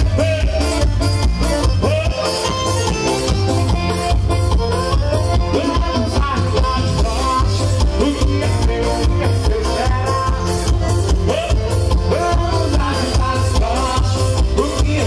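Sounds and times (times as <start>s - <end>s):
accordion melody: 0.0s - 15.0s
heavy bass drum beat: 0.0s - 15.0s.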